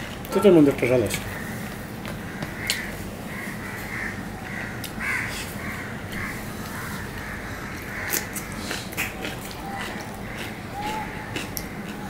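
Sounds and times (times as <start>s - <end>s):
crow cawing: 1.3s - 1.6s, 2.2s - 8.6s, 9.6s - 12.0s.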